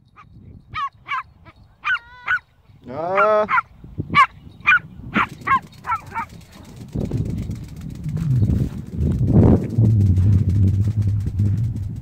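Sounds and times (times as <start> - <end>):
small dog yipping: 0.8 - 2.5, 3.2 - 6.4.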